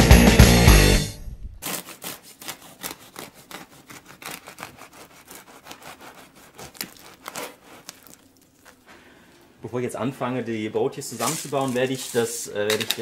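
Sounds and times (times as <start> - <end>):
knife sawing crusty bread: 1.6 - 8.8.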